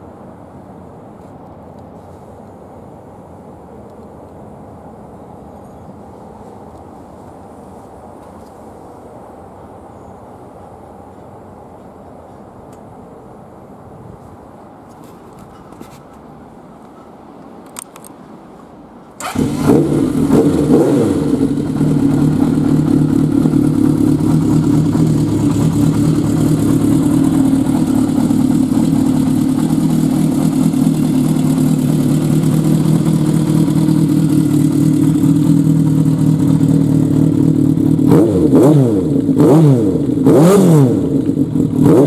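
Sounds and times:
motorcycle engine starting and idling: 19.1s - 42.0s.

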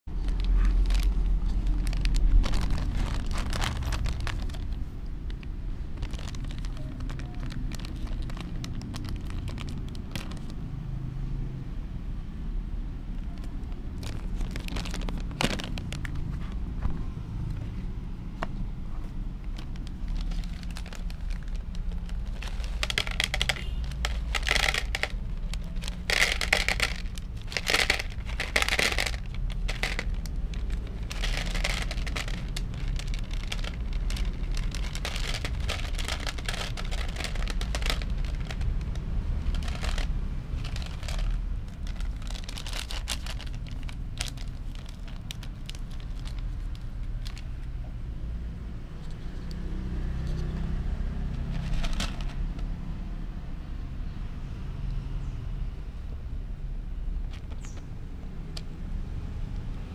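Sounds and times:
low rumble: 0.1s - 10.4s, 18.9s - 47.4s
plastic pouch crinkling: 0.1s - 10.6s, 13.3s - 16.2s, 19.4s - 47.7s, 51.4s - 52.6s, 57.3s - 57.8s
kibble rattling into plastic tub: 0.3s - 4.7s, 19.6s - 46.3s, 51.4s - 52.4s.

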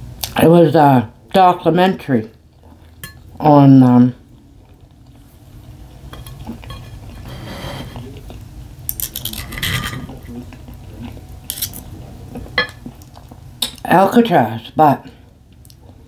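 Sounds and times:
cutlery scraping on a plate: 6.1s - 8.2s, 9.0s - 10.2s.

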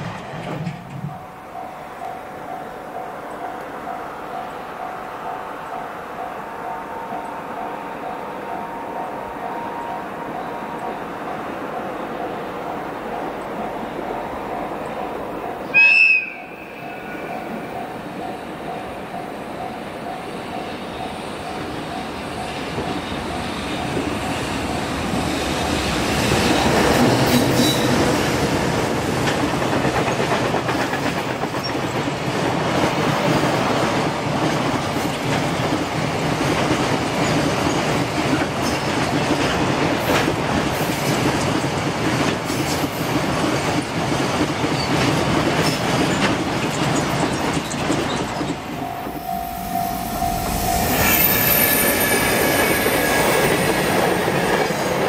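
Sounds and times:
electric locomotive passing: 0.0s - 55.0s
wheels clattering over rail joints: 34.4s - 48.8s.

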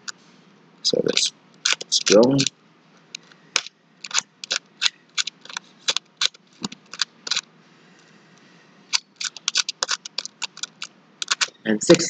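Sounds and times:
plastic puzzle tiles clicking: 1.1s - 2.5s, 4.0s - 4.6s, 5.2s - 7.4s, 9.0s - 11.6s.

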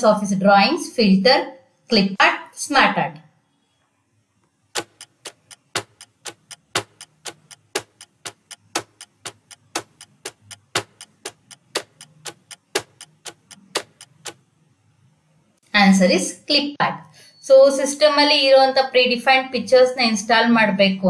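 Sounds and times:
clock ticking: 4.7s - 14.5s.

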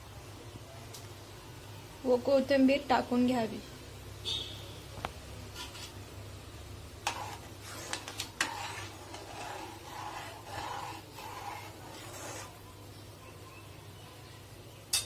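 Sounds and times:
spoon scraping while stirring: 5.5s - 6.0s, 7.0s - 12.6s.

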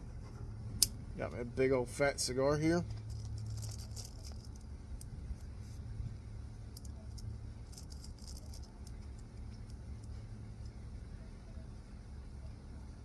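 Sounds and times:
low outdoor rumble: 0.0s - 13.0s
handling ticks and crackles: 2.7s - 5.8s, 6.6s - 10.8s.

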